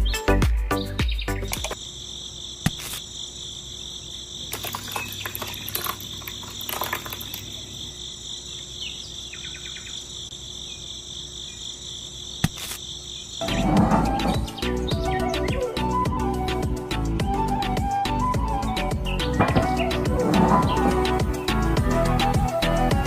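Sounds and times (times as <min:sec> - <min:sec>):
background music: 0:00.0 - 0:01.8, 0:13.4 - 0:23.0
scattered clicks: 0:01.5 - 0:01.8
high-pitched insect trill: 0:01.7 - 0:13.4.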